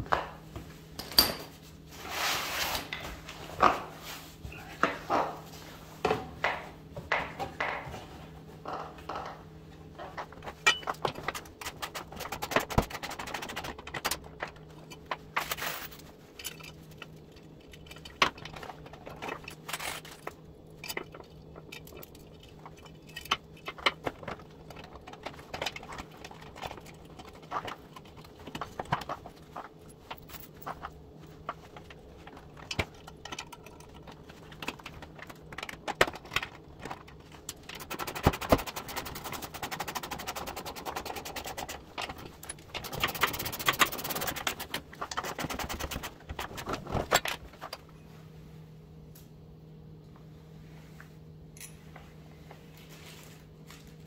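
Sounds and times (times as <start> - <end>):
metal hardware clinking: 51.6 - 51.8.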